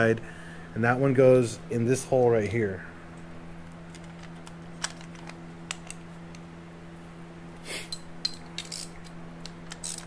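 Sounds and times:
steady low hum: 0.0s - 10.0s
clicks of metal parts and tools: 7.9s - 10.0s.

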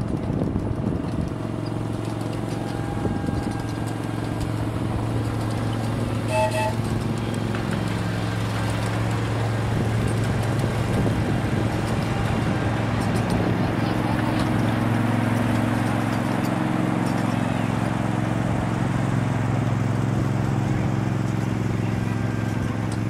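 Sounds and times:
small locomotive engine hum: 0.0s - 23.0s
locomotive horn toot: 2.5s - 7.2s.

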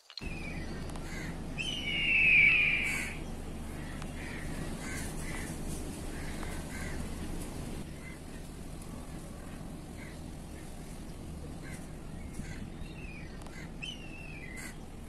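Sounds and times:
bird calling harshly: 0.0s - 8.5s, 11.6s - 14.9s
low background noise: 0.0s - 15.0s.

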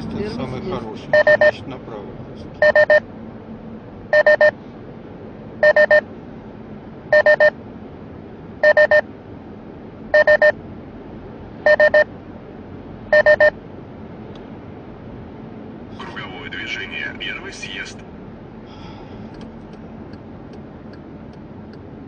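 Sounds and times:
car road noise: 0.0s - 22.0s
electronic triple beeps: 1.1s - 1.6s, 2.6s - 3.0s, 4.1s - 4.5s, 5.6s - 6.0s, 7.1s - 7.5s, 8.6s - 9.0s, 10.2s - 10.5s, 11.7s - 12.1s, 13.1s - 13.5s.

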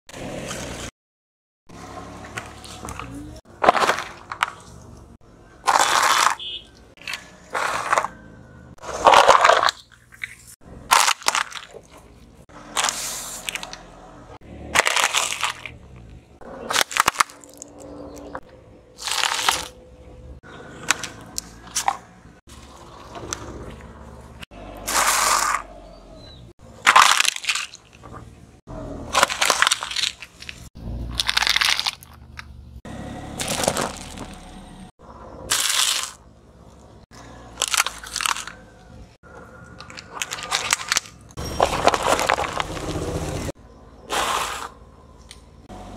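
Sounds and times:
car tyre crushing objects: 1.7s - 19.8s, 20.6s - 45.6s.

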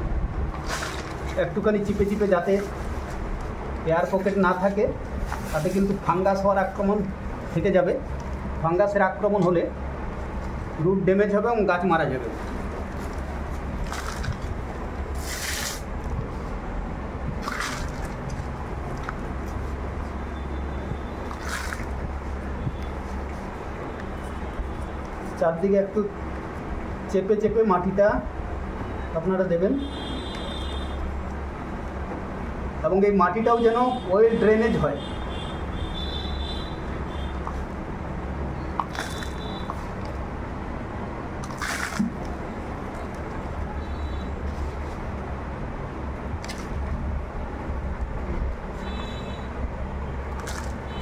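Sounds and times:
hands rustling potting soil: 0.5s - 6.8s, 12.3s - 16.6s.

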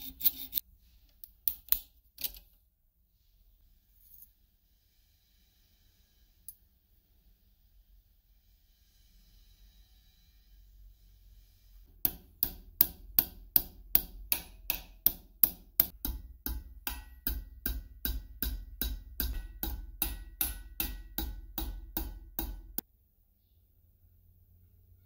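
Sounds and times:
hammer tapping metal: 11.9s - 22.8s.

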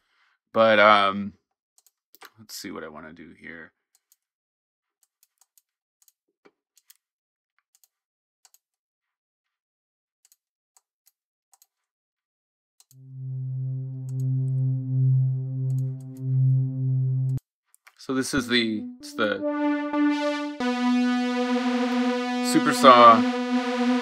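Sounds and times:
low synthesizer drone: 13.0s - 17.4s, 18.4s - 24.0s.

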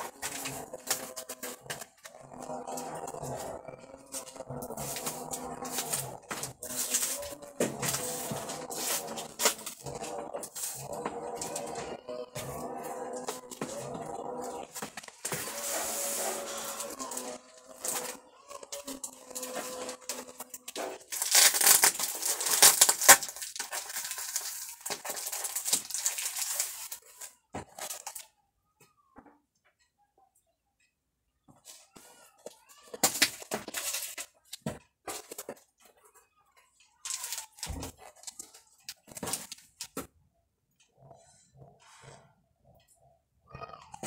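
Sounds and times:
cardboard rustling and scraping: 4.1s - 18.2s
cardboard box tearing: 4.2s - 11.8s, 18.9s - 27.0s.

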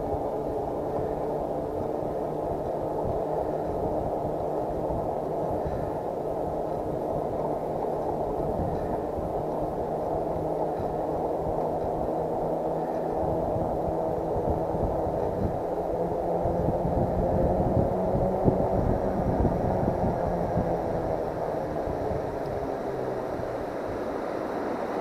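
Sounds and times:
faint steady hum: 0.0s - 25.0s
wind rush on microphone: 0.0s - 25.0s.

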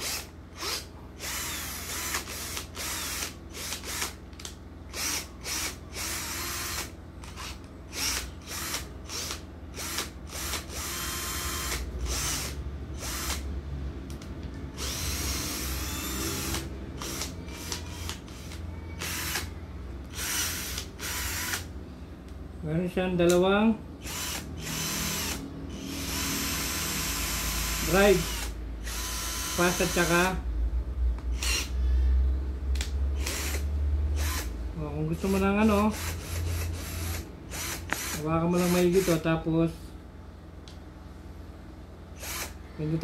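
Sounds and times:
cordless drill motor bursts: 0.0s - 13.5s, 14.7s - 19.5s, 20.1s - 21.7s, 24.0s - 30.4s, 31.3s - 31.7s, 33.2s - 34.5s, 35.2s - 39.3s, 42.2s - 42.6s.

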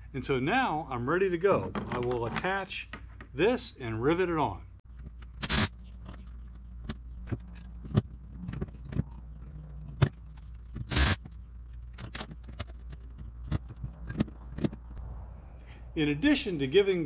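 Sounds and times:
handling knocks and clicks: 4.9s - 15.0s.

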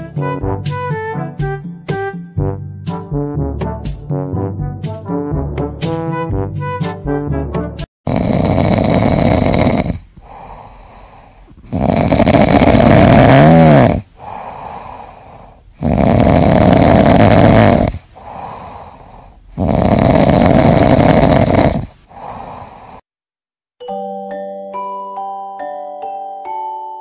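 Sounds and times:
kitten snoring loudly: 8.1s - 23.0s
soft breaths: 8.2s - 23.1s.

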